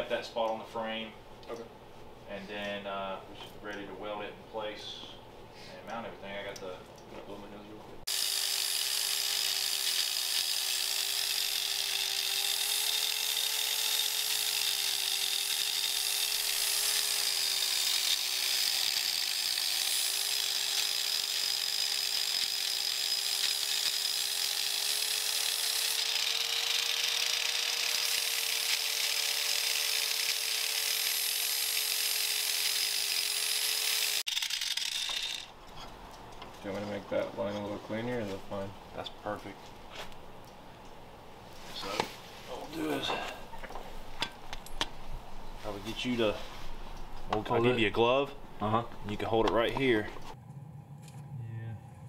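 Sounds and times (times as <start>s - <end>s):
angle grinder grinding metal: 8.1s - 35.6s.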